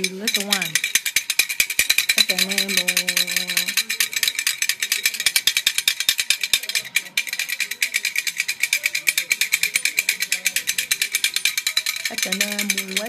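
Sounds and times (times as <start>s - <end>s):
hand rattle shaken fast: 0.0s - 13.0s.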